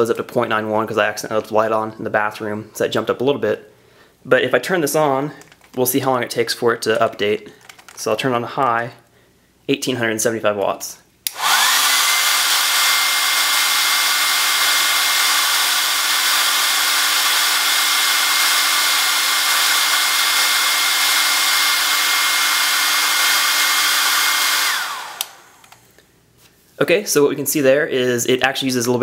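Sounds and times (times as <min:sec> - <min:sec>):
hair dryer switch click: 0:11.2 - 0:12.2, 0:24.4 - 0:25.8
hair dryer whine and airflow: 0:11.3 - 0:25.9.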